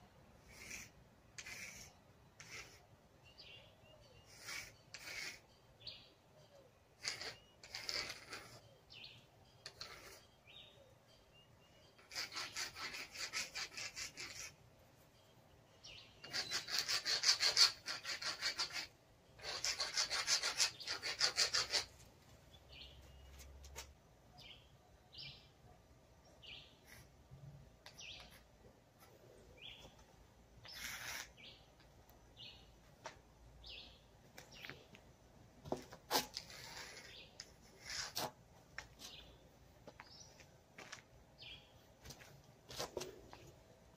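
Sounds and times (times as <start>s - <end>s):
drawing tool scraping on wall: 0.5s - 2.8s, 4.3s - 5.4s, 7.0s - 8.6s, 9.7s - 10.3s, 12.0s - 14.6s, 16.2s - 22.0s, 30.6s - 31.6s, 35.7s - 38.4s
bird chirping: 2.3s - 17.1s, 18.6s - 27.1s, 27.8s - 32.9s, 33.5s - 35.1s, 39.0s - 40.4s, 41.4s - 41.8s.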